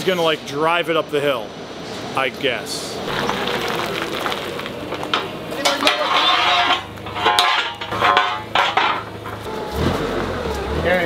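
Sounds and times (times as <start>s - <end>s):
metal forks clanking: 5.6s - 9.4s.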